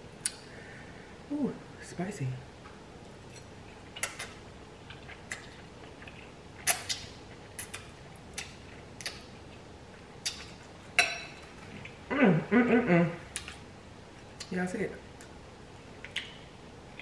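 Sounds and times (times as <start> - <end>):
mouth smacks and clicks: 16.0 - 16.4.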